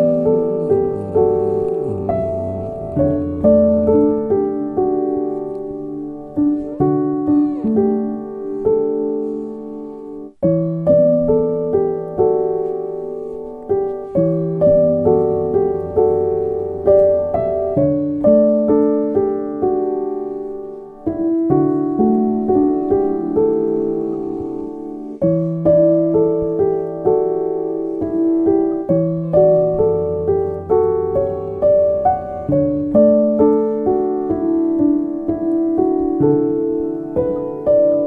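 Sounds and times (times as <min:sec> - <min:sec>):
solo piano music: 0:00.0 - 0:38.0.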